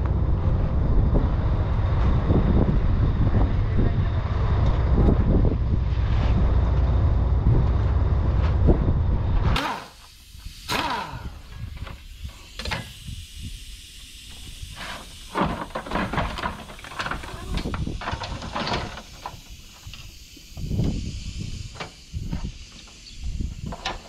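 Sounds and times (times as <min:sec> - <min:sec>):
loud low rumble: 0:00.0 - 0:09.6.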